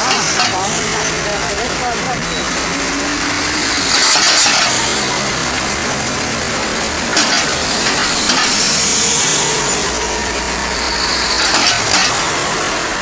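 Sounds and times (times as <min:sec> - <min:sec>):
manhole covers clanking: 0:00.0 - 0:13.0
traffic and tyre noise: 0:00.0 - 0:13.0.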